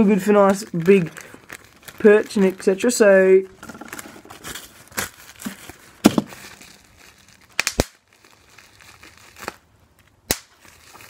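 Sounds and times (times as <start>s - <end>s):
bubble wrap crinkling: 0.0s - 11.0s
bubble wrap pops: 4.4s - 9.6s, 10.2s - 11.0s.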